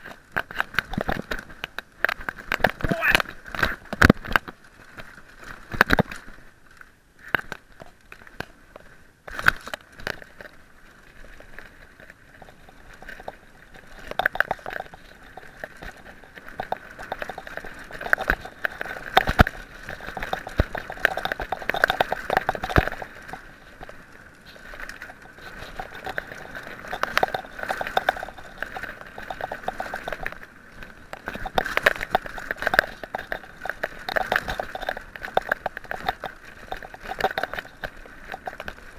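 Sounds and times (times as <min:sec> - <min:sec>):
mountain bike rattling and knocking: 0:00.0 - 0:38.9
tyres on dirt trail: 0:00.0 - 0:38.9.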